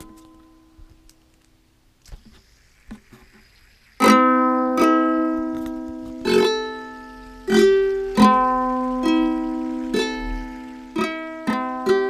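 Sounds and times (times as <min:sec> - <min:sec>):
ukulele chord strums: 0:00.0 - 0:01.4, 0:04.0 - 0:12.0.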